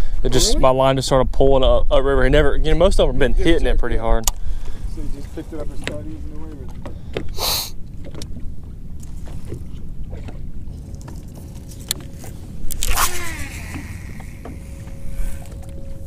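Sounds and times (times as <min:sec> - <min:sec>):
wind: 0:00.0 - 0:16.0
water noise: 0:04.4 - 0:16.0
reel spool whirring: 0:10.8 - 0:16.0
reel clicks: 0:11.8 - 0:15.8
fishing rod swish: 0:12.2 - 0:14.3.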